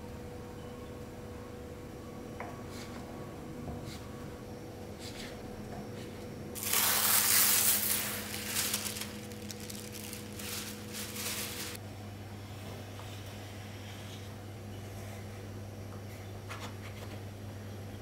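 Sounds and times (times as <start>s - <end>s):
wrapping crinkling and rustling: 6.6s - 11.8s.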